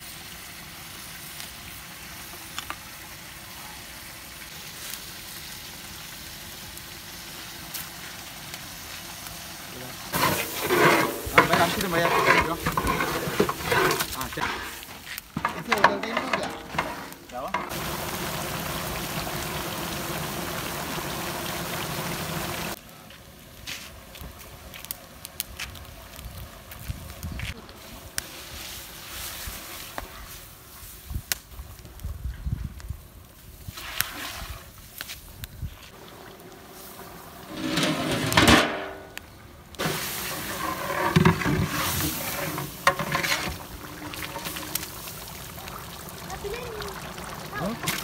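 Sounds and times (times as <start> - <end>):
stew bubbling and sizzling: 0.0 - 48.0
wood fire crackling: 0.0 - 48.0
metal pot lid clattering: 10.2 - 14.8, 37.5 - 39.1.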